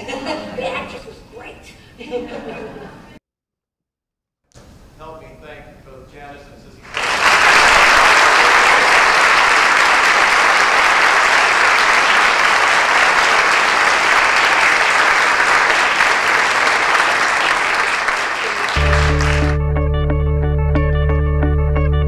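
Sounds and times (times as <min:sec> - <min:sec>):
audience applauding: 0:06.9 - 0:19.6.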